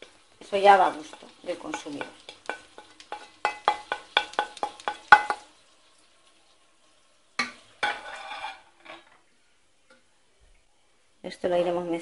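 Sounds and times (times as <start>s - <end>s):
spoon stirring with gritty scraping: 0.0s - 5.5s, 7.8s - 9.2s
wooden spoon scraping plate: 7.8s - 9.2s.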